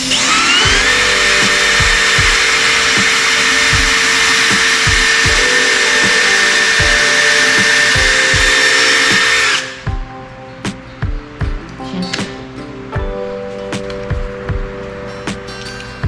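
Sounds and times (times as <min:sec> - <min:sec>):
electric drill running: 0:00.0 - 0:09.9
background music with beat: 0:00.0 - 0:16.0.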